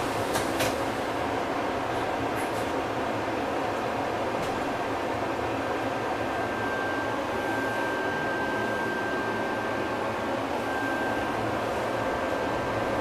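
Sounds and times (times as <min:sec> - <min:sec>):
tram rumble and hiss: 0:00.0 - 0:06.4
thin high whine: 0:06.2 - 0:13.0.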